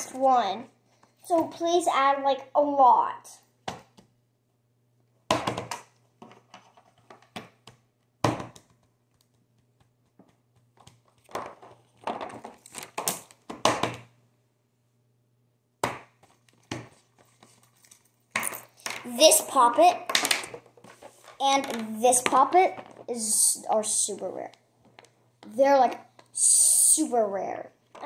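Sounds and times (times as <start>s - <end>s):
crinkling handling noises: 16.2s - 18.8s, 24.8s - 25.3s.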